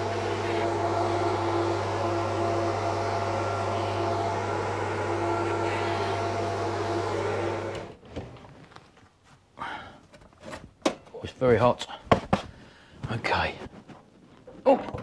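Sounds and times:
spray gun hissing: 0:00.0 - 0:07.9
machine hum: 0:00.0 - 0:08.7.

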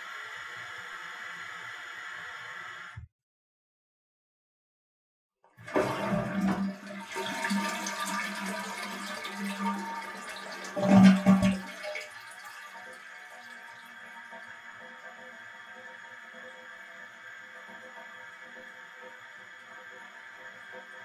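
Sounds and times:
toilet flushing: 0:05.6 - 0:15.1.

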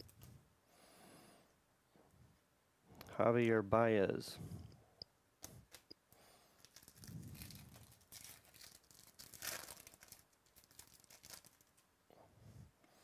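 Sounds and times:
foil wrapper tearing and crinkling: 0:06.6 - 0:11.8.

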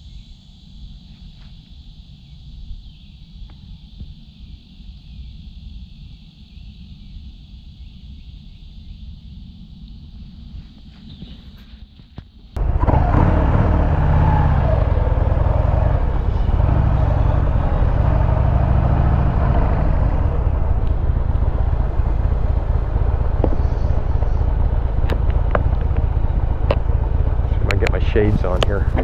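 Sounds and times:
heavy wind noise: 0:12.6 - 0:29.0
motorcycle engine accelerating: 0:12.6 - 0:29.0.

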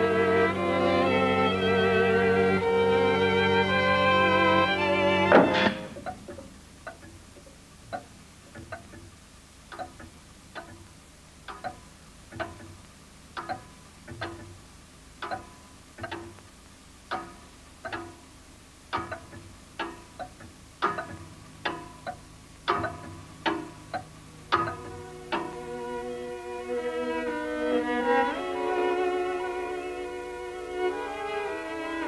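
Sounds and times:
clock ticking: 0:05.6 - 0:25.8.

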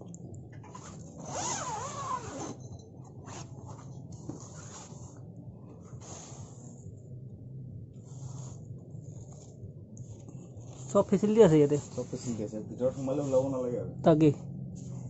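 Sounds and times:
tent zipper rasps: 0:00.7 - 0:02.6
tent fabric handled: 0:03.2 - 0:05.2.

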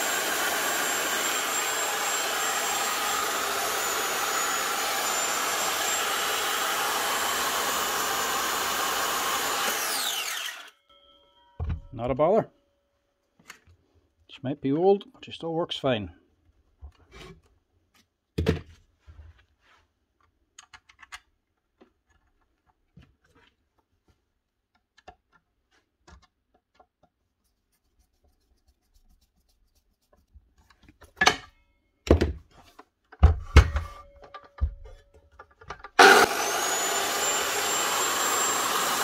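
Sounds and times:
object thunk: 0:11.6 - 0:11.9.

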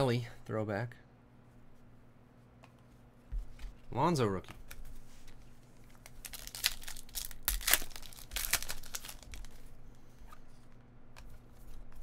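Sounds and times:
foil wrapper tearing and crinkling: 0:06.0 - 0:09.6.

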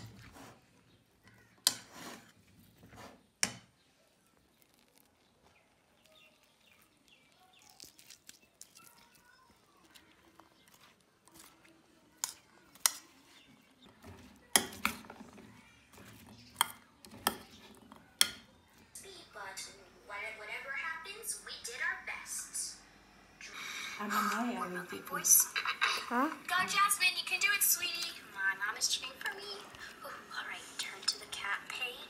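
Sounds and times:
spoon stirring food: 0:00.0 - 0:19.6, 0:27.4 - 0:32.0.

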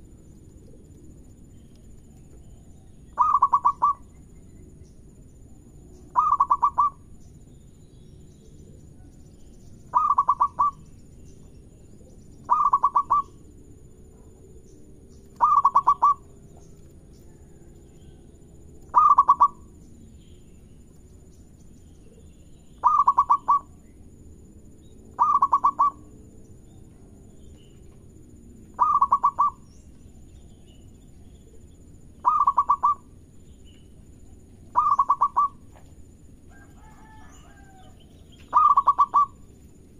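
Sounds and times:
dove cooing: 0:03.1 - 0:04.1, 0:06.1 - 0:07.0, 0:09.9 - 0:10.8, 0:12.0 - 0:13.5, 0:15.4 - 0:16.3, 0:18.9 - 0:19.7, 0:22.8 - 0:23.8, 0:25.2 - 0:26.2, 0:28.7 - 0:29.7, 0:31.4 - 0:33.2, 0:34.7 - 0:35.8, 0:36.5 - 0:39.5.

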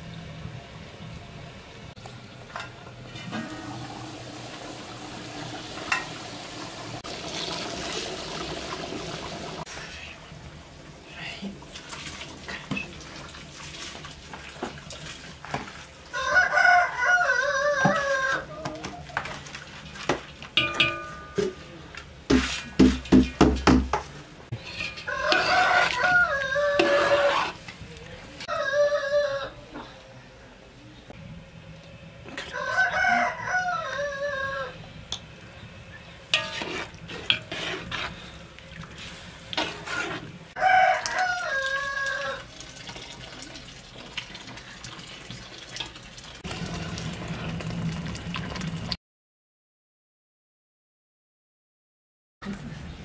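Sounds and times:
stew boiling and bubbling: 0:00.0 - 0:29.6, 0:31.2 - 0:49.0
rooster crowing: 0:16.1 - 0:18.6, 0:25.0 - 0:27.4, 0:28.5 - 0:29.8, 0:32.4 - 0:34.8, 0:40.6 - 0:42.5
metal lid clank: 0:20.6 - 0:21.6.

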